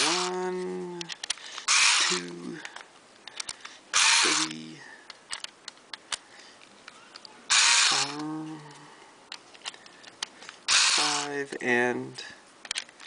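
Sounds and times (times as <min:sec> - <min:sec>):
electric screwdriver clicking: 0:00.0 - 0:00.4, 0:01.2 - 0:02.3, 0:04.0 - 0:04.6, 0:07.5 - 0:08.3, 0:10.7 - 0:11.4.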